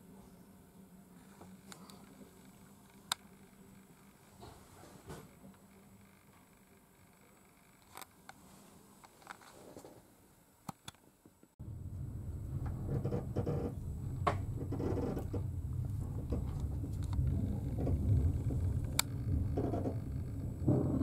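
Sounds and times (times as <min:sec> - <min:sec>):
train rumble inside carriage: 0:11.6 - 0:21.0
train clacks: 0:11.8 - 0:21.0
faint clicks: 0:14.2 - 0:20.7.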